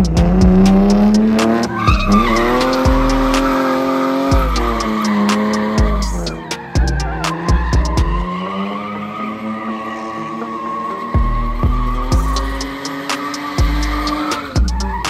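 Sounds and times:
background music with beat: 0:00.0 - 0:08.6, 0:10.3 - 0:15.0
car engine revving high: 0:00.0 - 0:15.0
tyre squeal: 0:00.8 - 0:15.0.

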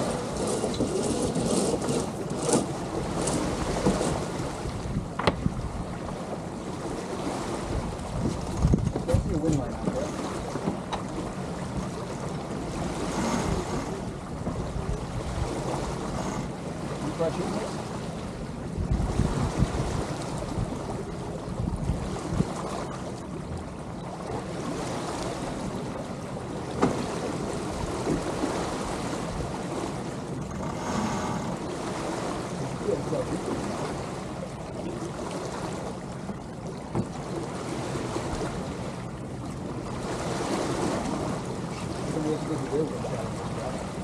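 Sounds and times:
wind noise on microphone: 0:00.0 - 0:06.0, 0:07.2 - 0:09.9, 0:18.6 - 0:22.8
water lapping along hulls: 0:00.0 - 0:44.0.

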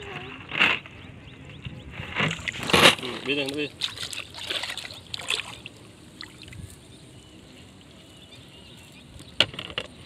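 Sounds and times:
water sloshing around wading legs: 0:02.3 - 0:06.8.

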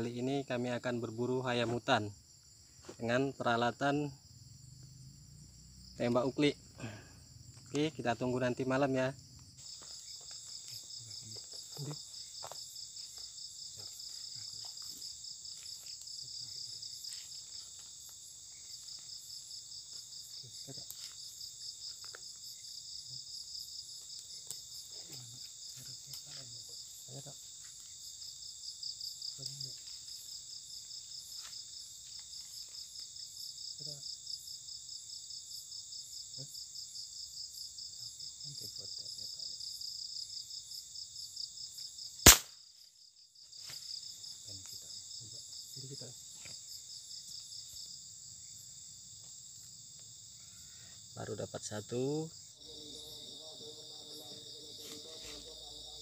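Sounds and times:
crickets trilling: 0:00.0 - 0:56.0
gunshot: 0:42.3 - 0:42.6.

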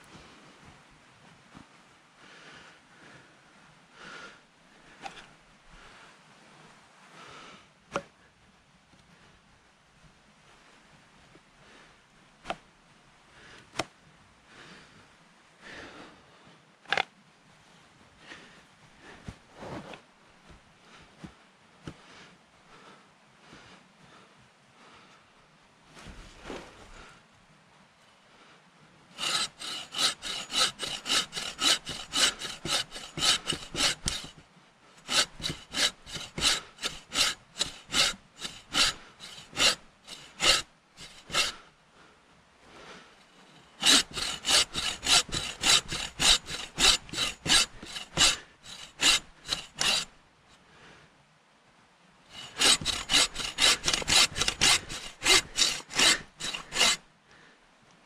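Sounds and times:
hand saw cutting wood: 0:29.2 - 0:34.4, 0:35.0 - 0:41.6, 0:43.6 - 0:50.1, 0:52.3 - 0:57.0.

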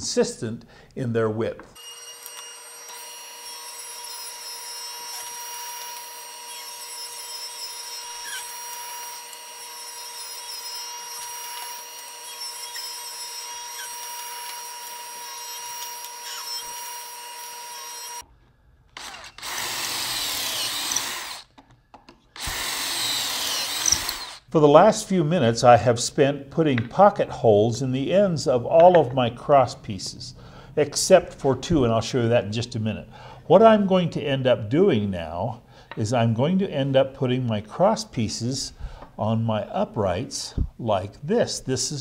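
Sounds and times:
cordless drill boring: 0:01.8 - 0:18.2, 0:19.0 - 0:21.5, 0:22.4 - 0:24.5
table saw whining: 0:01.8 - 0:18.2, 0:19.0 - 0:21.5, 0:22.4 - 0:24.5.

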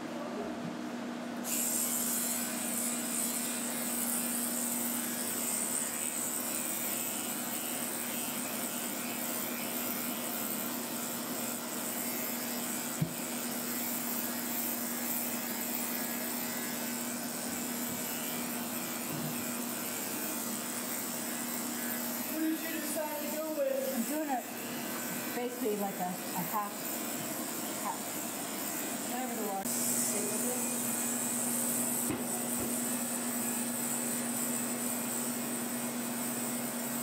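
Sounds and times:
electric clipper running: 0:01.4 - 0:37.0.

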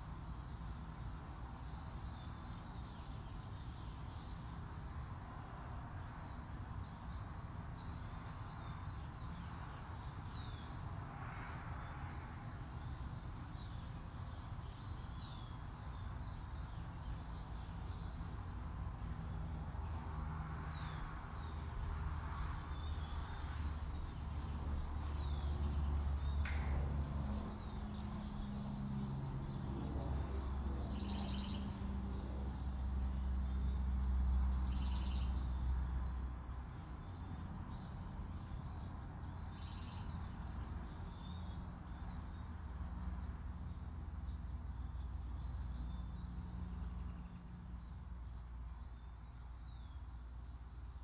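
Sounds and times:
deep drone with low tones: 0:20.6 - 0:33.5.

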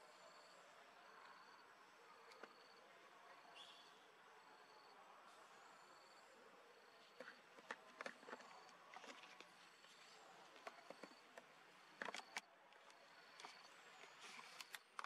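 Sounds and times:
faint high insect tone: 0:00.0 - 0:14.9
sharp clicks and rustles: 0:07.1 - 0:15.0.

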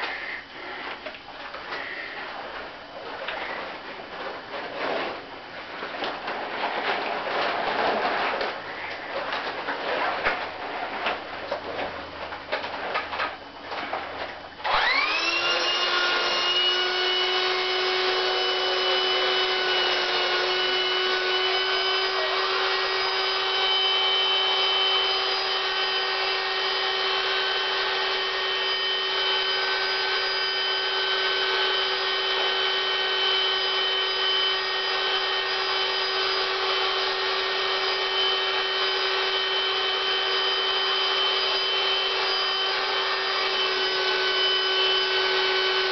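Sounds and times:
handling noises: 0:00.0 - 0:14.8
electric air pump humming: 0:14.6 - 0:45.9.

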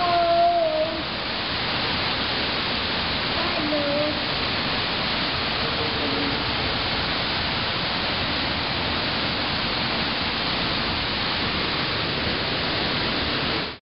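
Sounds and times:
steady rushing hiss: 0:00.0 - 0:13.8.

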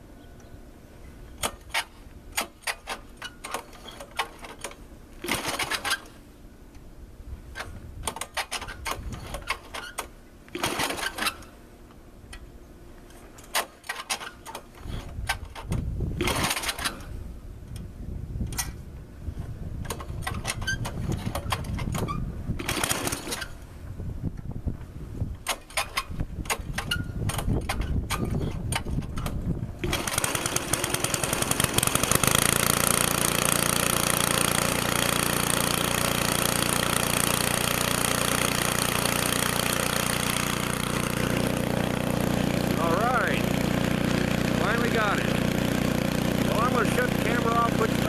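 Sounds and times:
rasping starter cord pulls: 0:01.4 - 0:06.2, 0:07.6 - 0:11.5, 0:13.1 - 0:17.2, 0:19.8 - 0:23.6, 0:25.4 - 0:48.0
engine popping and sputtering: 0:22.6 - 0:23.4, 0:26.5 - 0:48.0.

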